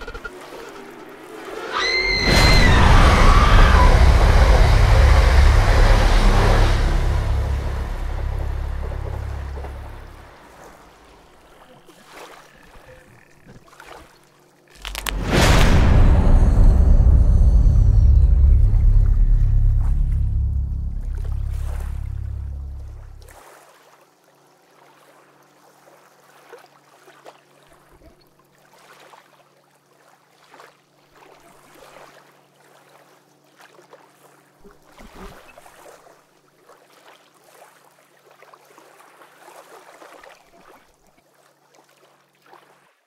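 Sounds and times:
low ambient drone: 0:00.0 - 0:11.5, 0:14.8 - 0:23.4
deep bass note: 0:02.3 - 0:10.6, 0:14.8 - 0:23.4
hiss-like noise swells: 0:02.3 - 0:10.7, 0:14.9 - 0:23.3.

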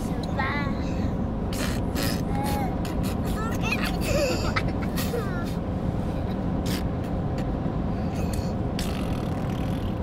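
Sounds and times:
child's voice: 0:00.0 - 0:01.1, 0:02.3 - 0:04.3
truck engine rumble and road noise: 0:00.0 - 0:10.0.

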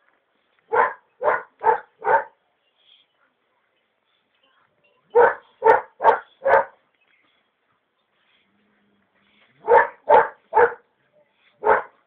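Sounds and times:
puppy barking: 0:00.7 - 0:02.4, 0:05.1 - 0:06.8, 0:09.6 - 0:10.8, 0:11.6 - 0:12.0.

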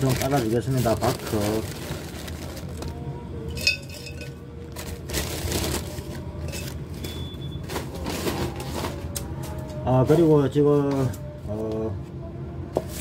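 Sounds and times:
plastic bag rustling: 0:00.0 - 0:07.1
bark chips rattling into pot: 0:03.5 - 0:04.3.

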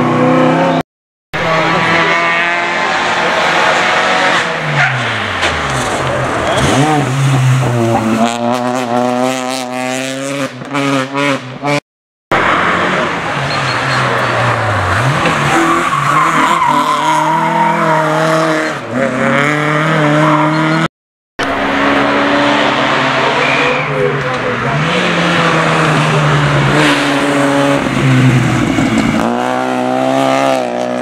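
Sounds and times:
rally car engines revving: 0:01.4 - 0:31.0
tyre squeal: 0:06.4 - 0:07.1, 0:13.4 - 0:18.2, 0:23.3 - 0:24.2.

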